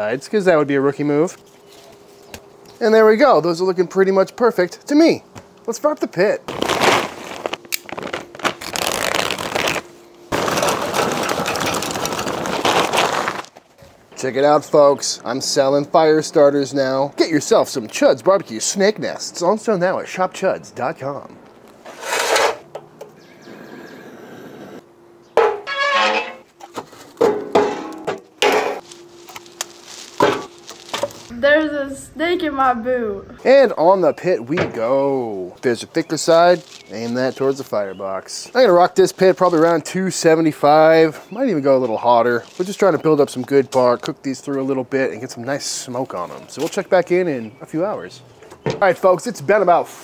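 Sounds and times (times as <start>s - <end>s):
charcoal pouring into metal: 10.3s - 13.5s
metal clanks: 25.4s - 26.5s.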